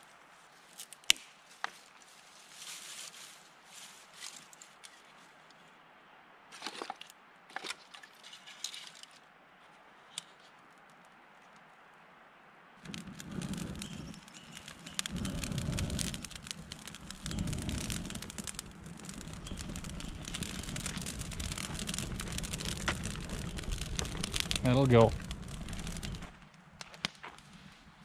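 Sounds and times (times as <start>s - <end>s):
fire snapping: 0.8s - 1.4s, 12.8s - 28.0s
campfire crackling and popping: 0.8s - 2.1s, 12.8s - 28.0s.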